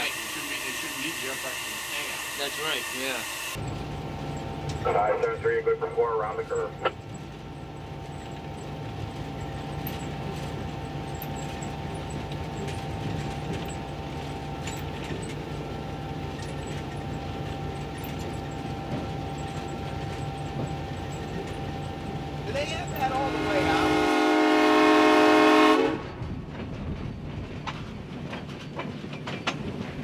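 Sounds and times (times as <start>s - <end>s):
steady rumble inside cab: 3.5s - 23.3s.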